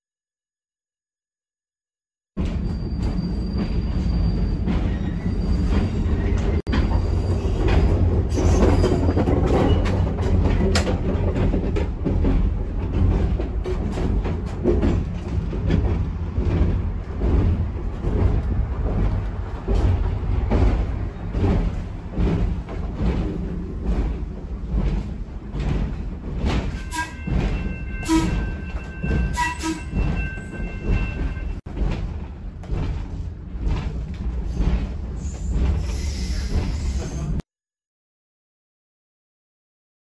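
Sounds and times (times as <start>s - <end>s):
trolley wheels rumbling: 2.4s - 37.4s
high wheel squeal: 2.6s - 9.0s, 26.8s - 31.6s, 35.2s - 37.4s.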